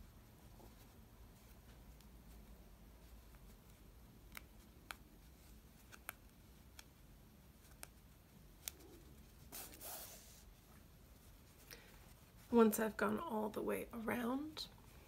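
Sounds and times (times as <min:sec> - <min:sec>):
fabric rustling: 0:00.0 - 0:13.3
faint small needle clicks: 0:04.2 - 0:05.1, 0:05.8 - 0:07.0.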